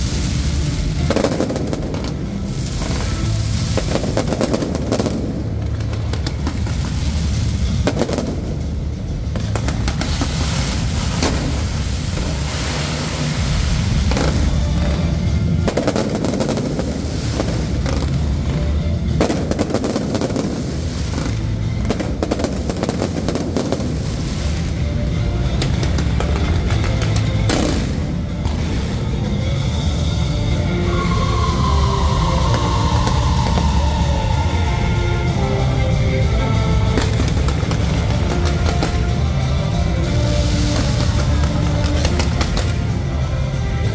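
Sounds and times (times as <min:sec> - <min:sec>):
deep booms: 0:00.0 - 0:23.9
fireworks crackling and bursting: 0:00.0 - 0:43.9.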